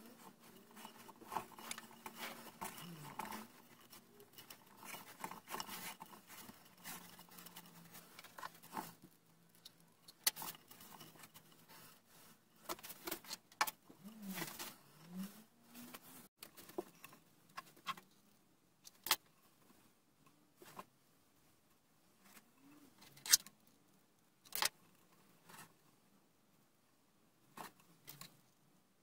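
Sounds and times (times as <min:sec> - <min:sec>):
rope rustling and scraping on wood: 0:00.0 - 0:18.0.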